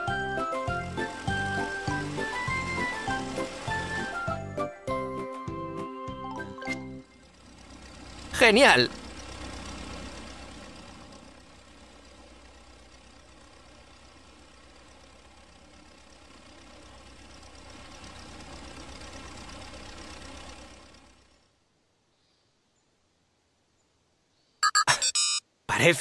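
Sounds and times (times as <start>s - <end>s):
propeller plane engine running: 0.0s - 21.5s.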